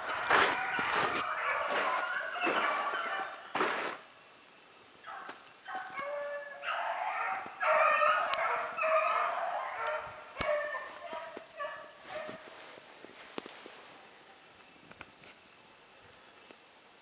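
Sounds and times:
hounds baying: 0.0s - 3.7s, 5.0s - 12.5s.

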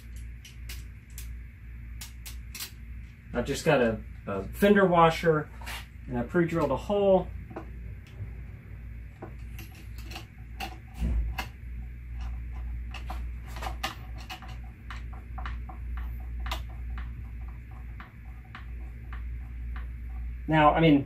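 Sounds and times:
low steady hum: 0.0s - 21.0s
metal clicks and scrapes: 9.4s - 20.3s.

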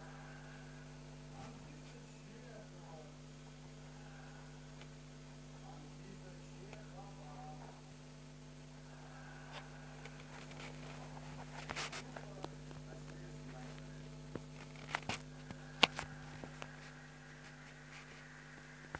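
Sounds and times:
steady low hum: 0.0s - 18.9s
small clicks and rustles: 9.6s - 18.3s.

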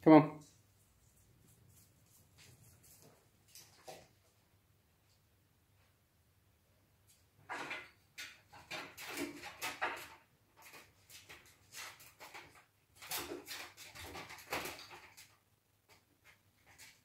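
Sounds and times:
puppies scrabbling and scraping: 7.2s - 17.0s.

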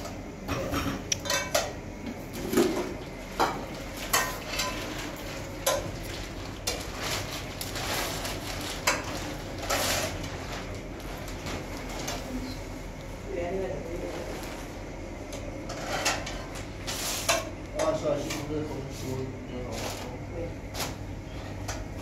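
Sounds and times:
metal pots and dishes clinking: 0.5s - 1.8s, 2.5s - 5.0s.

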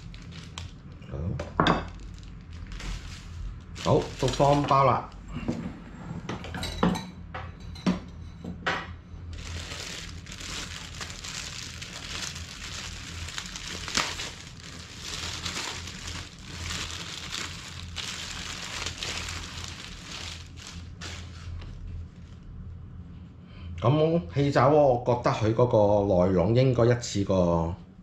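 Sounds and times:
plastic bread bag crinkling: 0.0s - 5.2s, 9.3s - 22.4s.

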